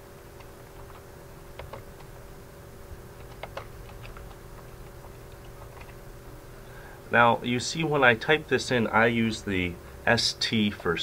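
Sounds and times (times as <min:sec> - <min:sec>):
faint steady hum: 0:00.0 - 0:11.0
keyboard key clicks: 0:01.6 - 0:02.1, 0:03.2 - 0:04.4.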